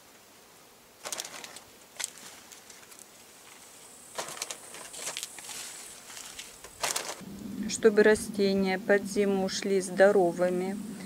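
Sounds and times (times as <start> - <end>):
bag rustling: 1.0 - 7.2
granules scattered on leaves: 1.0 - 7.2.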